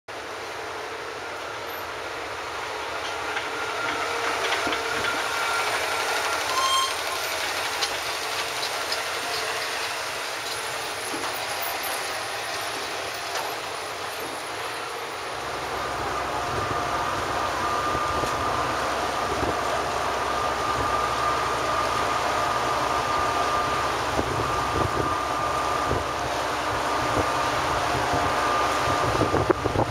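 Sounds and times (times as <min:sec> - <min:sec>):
ferry engines running: 0:00.1 - 0:29.9.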